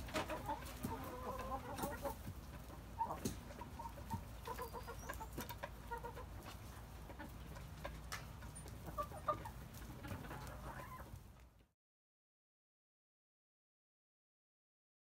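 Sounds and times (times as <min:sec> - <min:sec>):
chickens clucking: 0:00.0 - 0:11.7.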